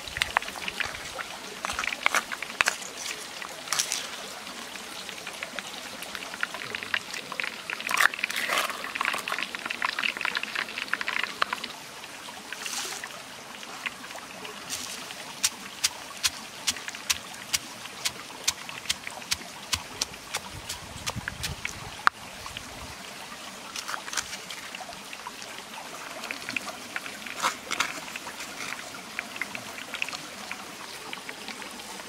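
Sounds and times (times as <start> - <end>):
pestle pounding in mortar: 17.1 - 21.6.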